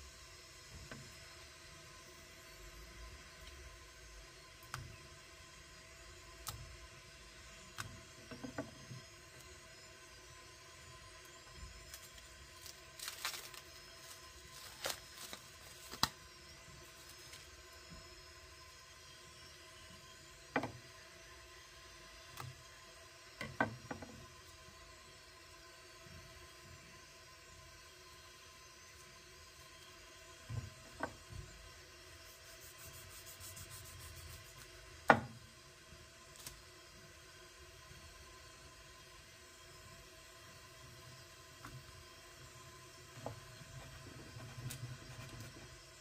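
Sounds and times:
faint rubbing: 32.3 - 34.6
knocks on wooden cutting board: 35.1 - 35.4.

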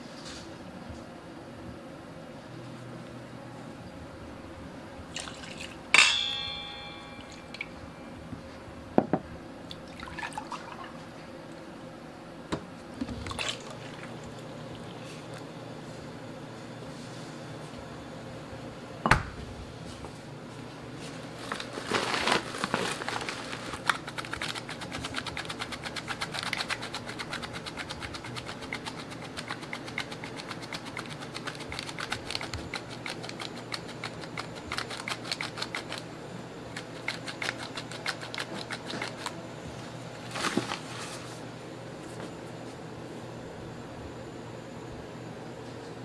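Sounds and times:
steady low hum: 0.0 - 46.0
flour sifter clicking and rattling: 21.4 - 36.1, 36.7 - 39.4.

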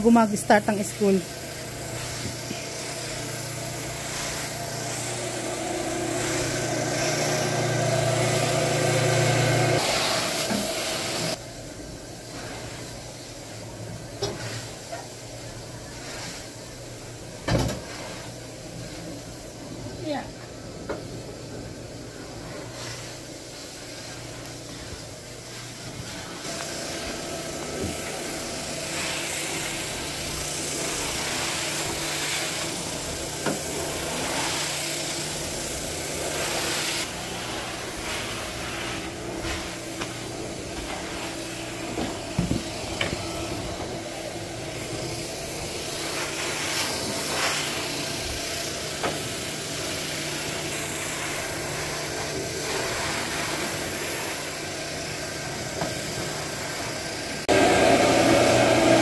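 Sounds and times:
water spraying and sucking hiss: 0.0 - 59.0
carpet extractor motor humming: 0.6 - 11.4, 24.4 - 47.2, 57.2 - 59.0.

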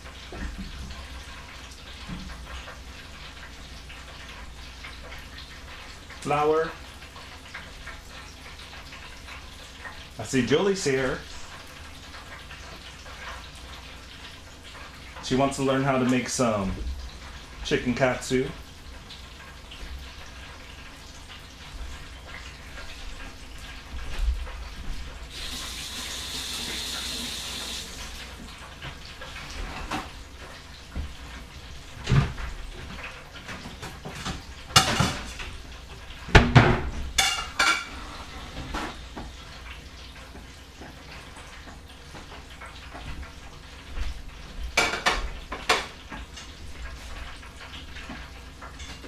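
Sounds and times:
water running from tap: 0.0 - 49.0
dishes and utensils clattering: 33.4 - 35.6, 36.4 - 39.0, 44.8 - 46.5.

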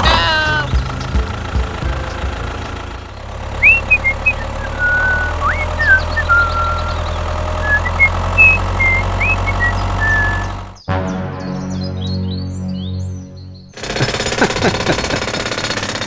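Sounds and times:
small engine idling: 0.0 - 10.8, 13.8 - 16.0
bird chirps: 3.6 - 14.5.

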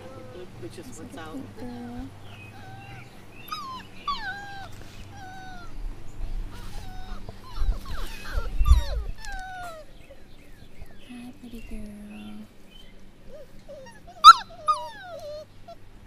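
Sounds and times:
puppies whining and whimpering: 0.0 - 10.7, 13.3 - 15.9.

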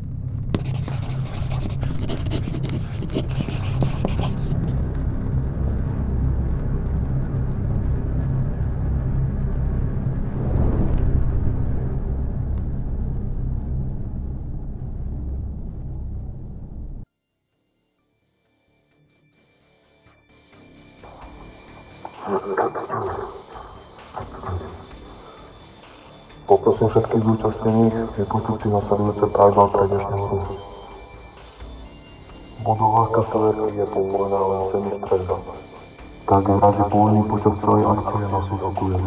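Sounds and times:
crackling: 0.0 - 17.0
deep low rumble: 0.0 - 17.0.

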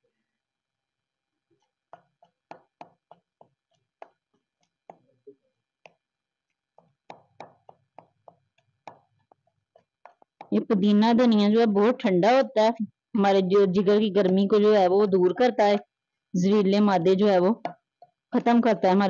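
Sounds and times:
pestle pounding in stone mortar: 1.9 - 5.0, 6.7 - 10.6.

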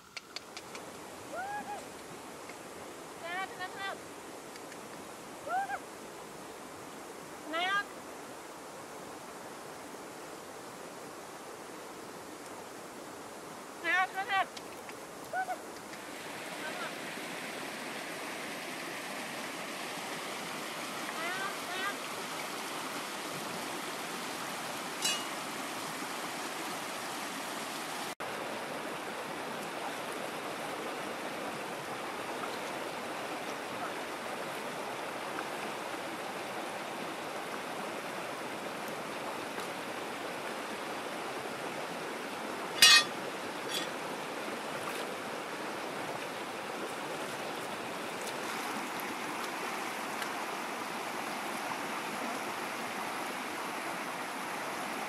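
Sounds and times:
faint click: 4.5 - 5.0
river rushing over rocks: 5.0 - 55.0.

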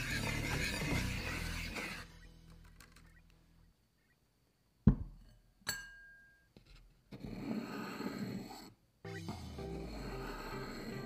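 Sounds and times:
stick scraping through flour: 0.0 - 2.0, 7.1 - 8.8
ceramic bowl knocking on table: 4.9 - 5.2
bowl clinking: 5.6 - 6.4.

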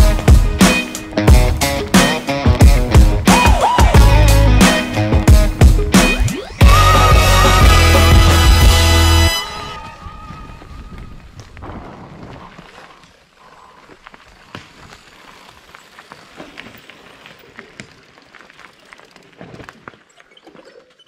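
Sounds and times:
wind: 8.9 - 21.0
bike tyres rolling over leaves and gravel: 9.6 - 21.0
twigs crackling and clicking: 10.9 - 21.0.

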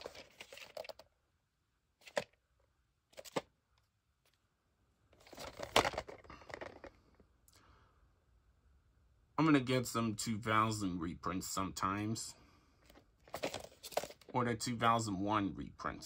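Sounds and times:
cardboard sleeve rustling: 0.0 - 1.0, 5.2 - 6.9, 12.9 - 14.3.

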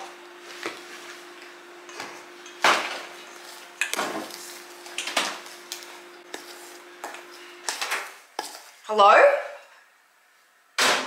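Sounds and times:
microwave oven humming: 0.0 - 8.3.

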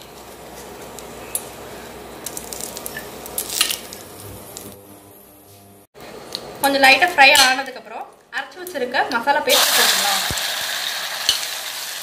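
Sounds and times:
spices sizzling in hot oil: 9.4 - 12.0.

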